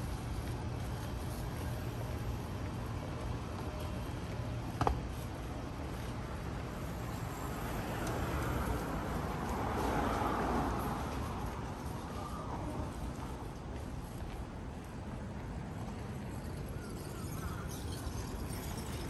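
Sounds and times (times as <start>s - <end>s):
traffic rumble: 0.0s - 19.0s
vehicle passing: 7.2s - 11.9s.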